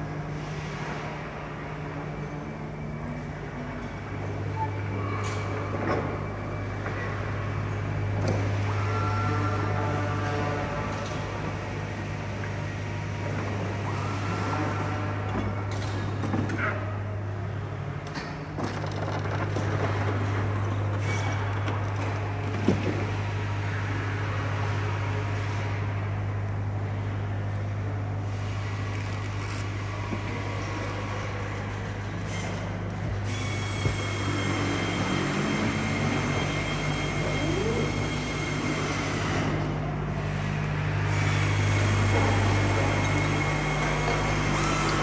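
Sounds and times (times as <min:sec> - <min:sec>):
factory machinery droning: 0:00.0 - 0:45.0
high machine whine: 0:20.2 - 0:45.0.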